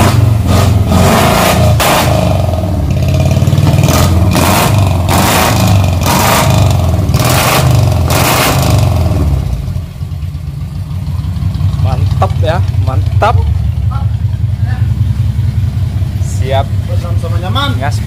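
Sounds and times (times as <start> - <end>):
pickup engine revving: 0.0 - 9.9.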